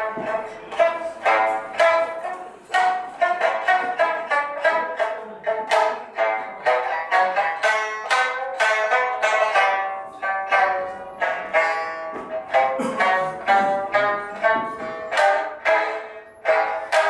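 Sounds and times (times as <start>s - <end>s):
plucked string notes: 0.0s - 17.0s.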